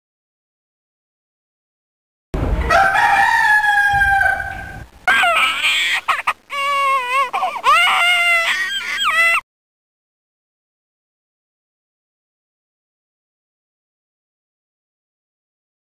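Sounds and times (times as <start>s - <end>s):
rooster crowing: 2.6s - 5.4s.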